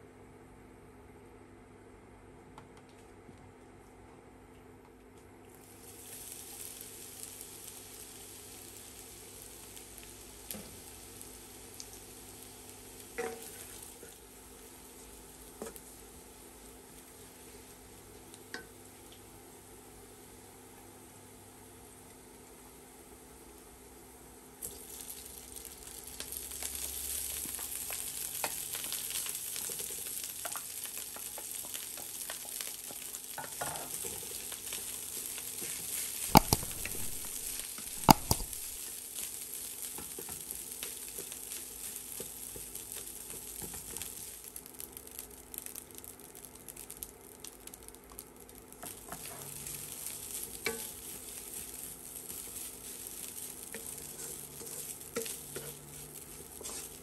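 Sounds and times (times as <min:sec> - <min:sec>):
rice sizzling in hot oil: 0:05.6 - 0:57.0
wooden spatula scraping pan: 0:53.7 - 0:57.0.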